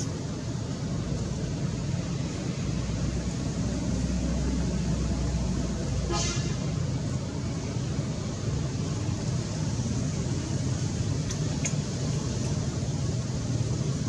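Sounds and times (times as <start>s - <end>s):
passing vehicle rumble: 0.0s - 14.0s
short high horn toot: 6.1s - 6.6s.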